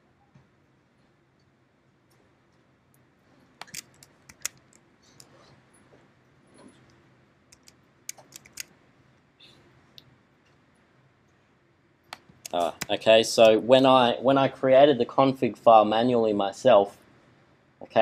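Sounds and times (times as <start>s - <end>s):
low steady hum: 0.0s - 18.0s
keyboard and mouse clicks: 3.6s - 5.4s, 6.8s - 8.8s, 12.1s - 13.0s.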